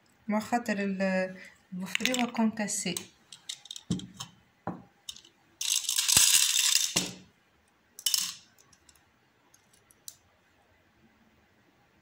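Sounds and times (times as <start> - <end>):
sugar beads rattling in plastic jar: 5.1 - 7.2, 8.0 - 8.5.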